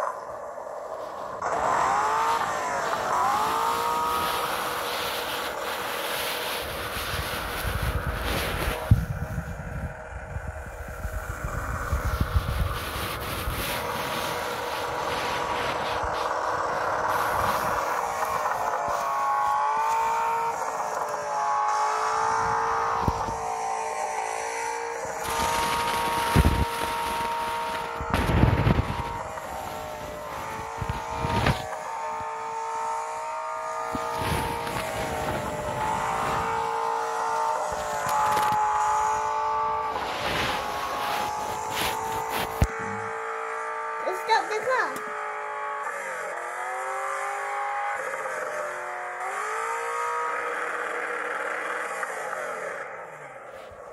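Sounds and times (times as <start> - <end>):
engine-like hum: 0.0 - 53.9
low rumbling and rubbing: 3.3 - 18.8.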